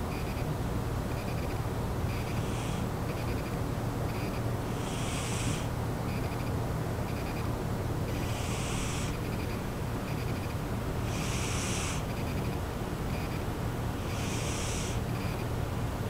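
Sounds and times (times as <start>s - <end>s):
cat snoring: 4.7s - 5.7s, 8.1s - 9.4s, 11.0s - 12.3s, 14.0s - 15.1s.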